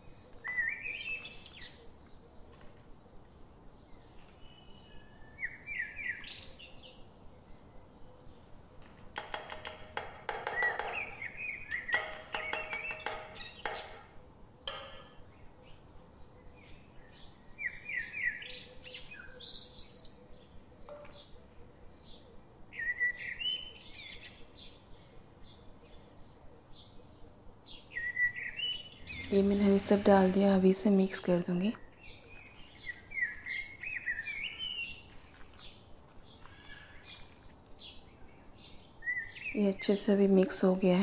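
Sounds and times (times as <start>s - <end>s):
small bird chirping: 0.0s - 9.6s, 10.3s - 24.9s, 27.7s - 41.0s.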